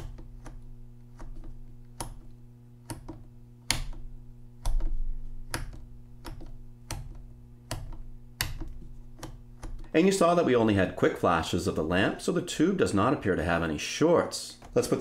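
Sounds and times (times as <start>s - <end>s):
rotary switch clicking: 0.0s - 9.9s
steady low hum: 0.0s - 15.0s.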